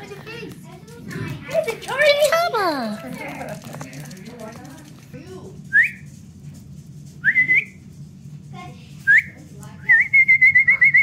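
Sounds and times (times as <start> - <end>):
person whistling: 9.9 - 11.0.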